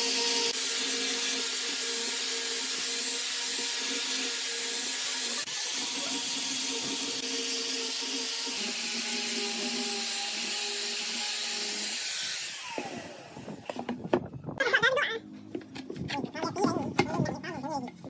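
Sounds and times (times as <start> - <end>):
angle grinder sanding wood: 0.0 - 13.7.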